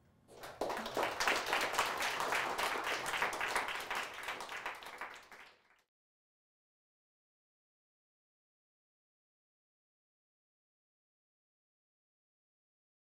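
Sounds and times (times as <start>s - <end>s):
audience applauding: 0.3s - 5.9s.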